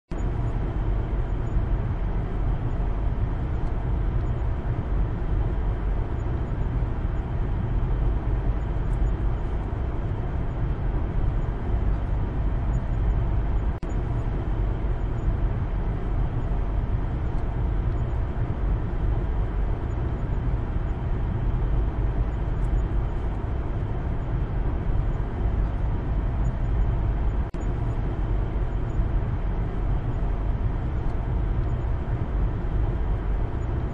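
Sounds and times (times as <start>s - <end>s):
car engine and road rumble: 0.1s - 33.9s.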